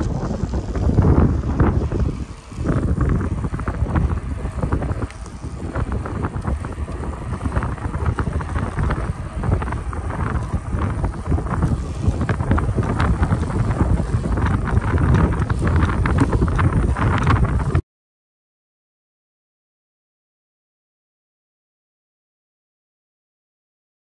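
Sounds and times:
wind buffeting microphone: 0.0s - 17.8s.

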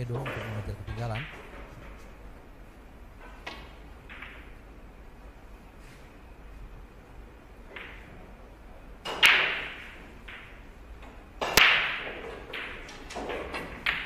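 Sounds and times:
cue striking ball: 0.0s - 2.3s, 3.2s - 4.7s, 7.7s - 8.4s, 9.0s - 10.7s, 11.4s - 14.0s
pool balls clacking: 0.0s - 4.9s, 7.6s - 14.0s.

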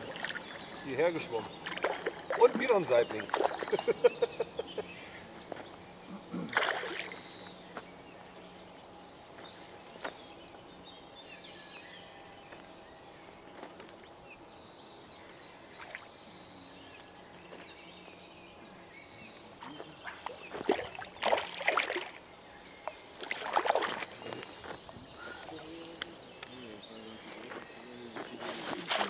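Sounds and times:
water splashing: 0.0s - 0.6s, 1.5s - 3.8s, 6.5s - 7.2s, 20.0s - 22.2s, 23.2s - 24.2s, 28.8s - 29.0s.

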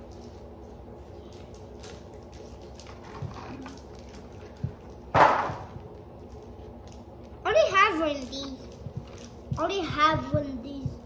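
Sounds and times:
cards ticking and tapping: 8.1s - 11.0s.

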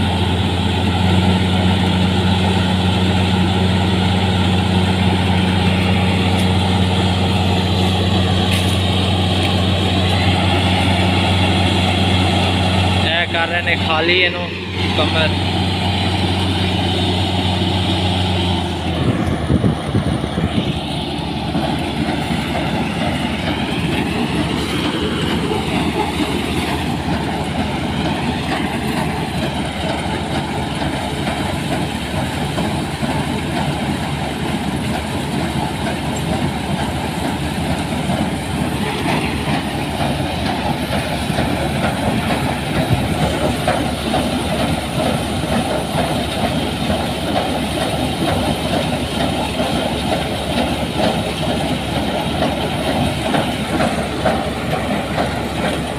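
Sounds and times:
combine harvester diesel engine: 0.0s - 55.9s
threshing mechanism rattling: 4.0s - 10.2s.

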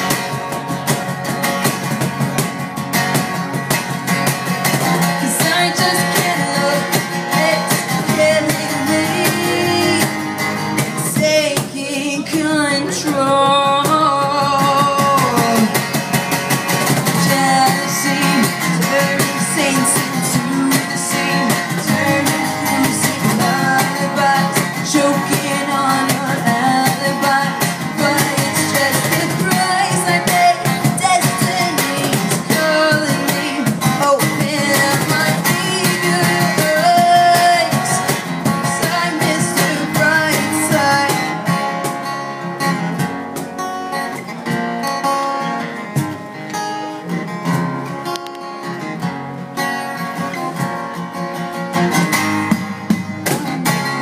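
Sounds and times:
percussion beat: 0.0s - 11.7s, 52.0s - 54.0s
acoustic guitar strumming: 0.0s - 54.0s
woman singing: 4.8s - 16.0s, 16.9s - 41.4s.

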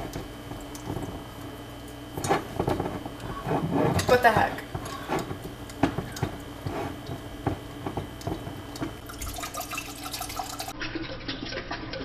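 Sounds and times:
wine pouring into a glass: 9.0s - 12.0s.

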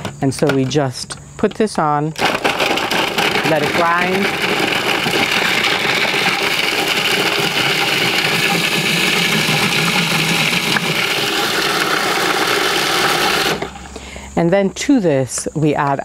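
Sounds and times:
food processor grinding cheese: 2.2s - 13.9s.

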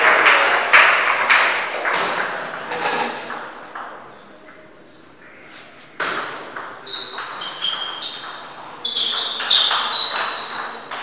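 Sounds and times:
shoes squeaking on floor: 2.0s - 3.9s, 5.4s - 11.0s.

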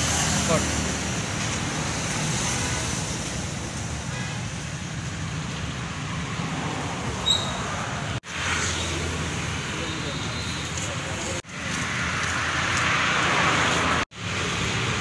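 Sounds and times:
roadside traffic: 0.0s - 15.0s.

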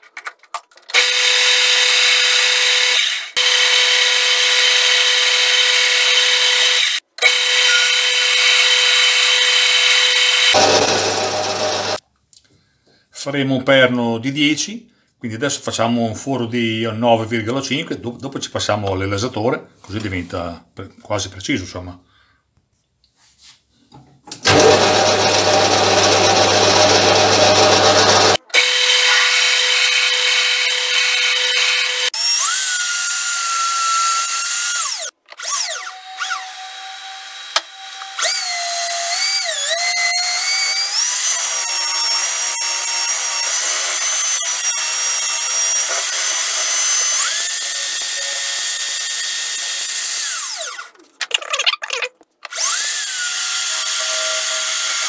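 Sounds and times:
lathe motor whine: 3.4s - 12.0s, 24.5s - 32.1s.

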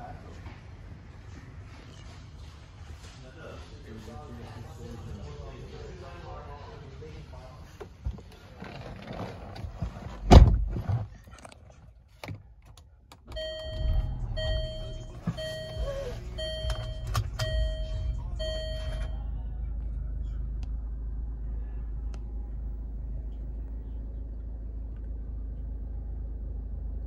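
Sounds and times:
car engine starting and idling: 7.3s - 27.0s
warning chime dinging: 13.4s - 19.2s.

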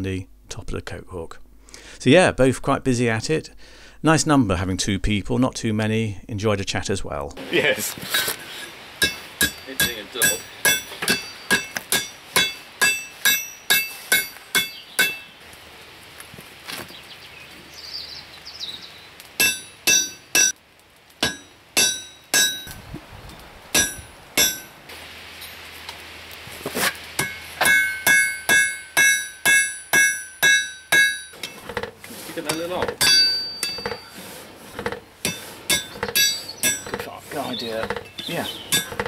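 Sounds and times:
hammer ringing on anvil: 9.0s - 15.3s, 19.4s - 20.5s, 21.2s - 22.8s, 23.8s - 24.7s, 27.2s - 31.4s, 33.0s - 34.1s, 35.3s - 37.0s.

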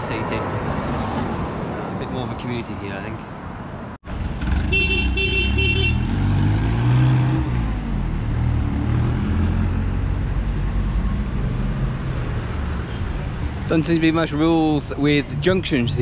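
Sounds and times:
traffic rumble: 0.0s - 16.0s
vehicle horn: 4.6s - 6.1s.

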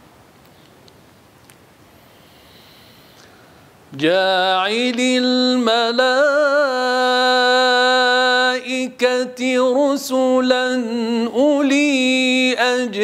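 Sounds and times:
man reciting melodically: 3.9s - 13.0s.

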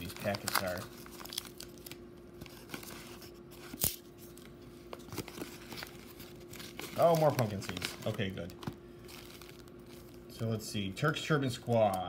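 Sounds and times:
paper envelope tearing: 0.0s - 4.4s, 5.1s - 8.5s
sharp paper crackles: 0.0s - 4.4s, 5.0s - 10.3s.

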